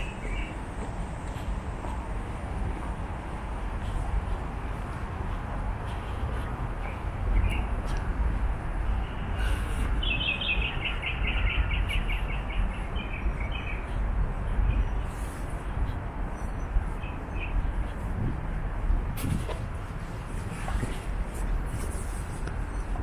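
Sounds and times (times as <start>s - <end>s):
songbird chirping: 10.0s - 14.0s.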